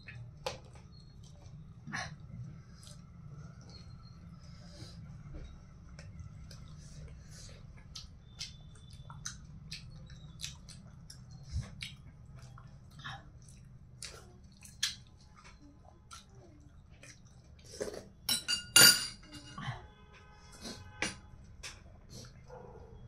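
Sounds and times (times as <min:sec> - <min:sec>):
person chewing food: 0:05.8 - 0:18.2.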